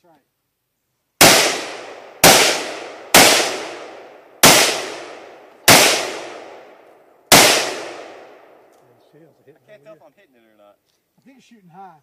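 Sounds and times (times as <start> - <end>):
rifle single shots: 1.2 - 8.8.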